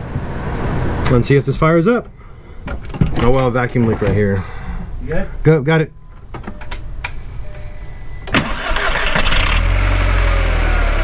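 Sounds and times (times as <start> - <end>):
car engine starting and idling: 8.2 - 11.0
starter motor cranking: 8.3 - 10.0.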